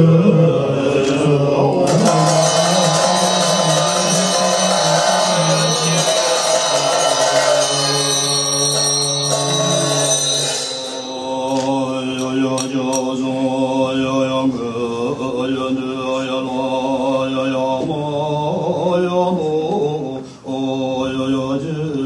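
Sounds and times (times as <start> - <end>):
monks chanting in unison: 0.0 - 10.1, 11.0 - 22.0
music track: 1.8 - 12.9.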